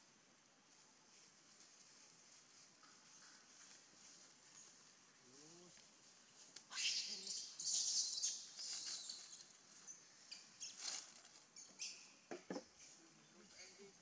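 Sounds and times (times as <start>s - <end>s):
dry leaves rustling and crackling: 0.7s - 9.8s, 10.6s - 11.5s.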